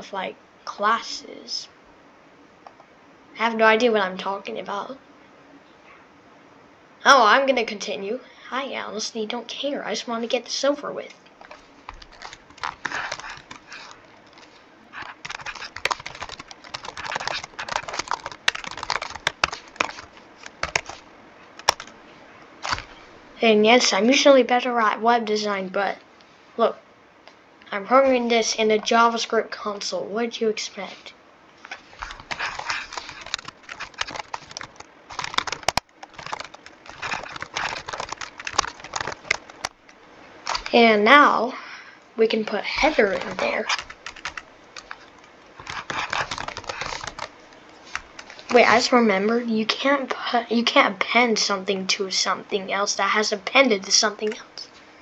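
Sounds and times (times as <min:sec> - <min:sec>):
computer keyboard typing: 0:11.5 - 0:21.0, 0:21.6 - 0:22.0, 0:22.6 - 0:22.9, 0:31.9 - 0:39.8, 0:42.8 - 0:47.4.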